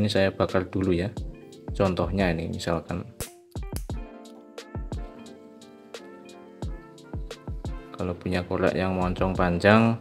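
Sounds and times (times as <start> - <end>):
held chords: 0.0 - 9.6
deep pitch-dropping drum beats: 6.6 - 7.8.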